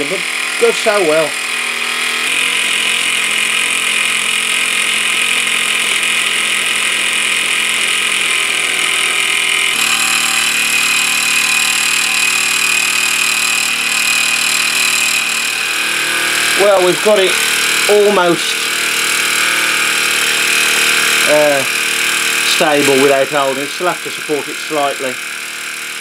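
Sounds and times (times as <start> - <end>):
model steam engine chattering: 0.0 - 1.7, 10.6 - 26.0.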